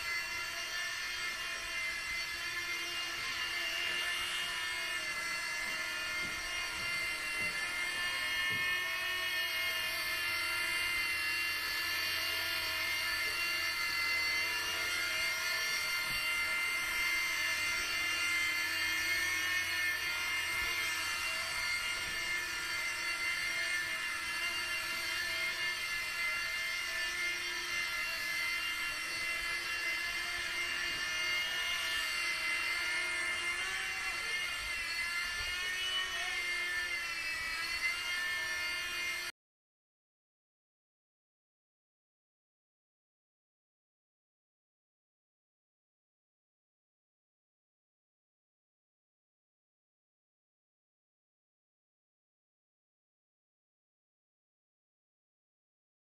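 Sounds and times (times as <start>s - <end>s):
rc helicopter motor whine: 0.0s - 39.3s.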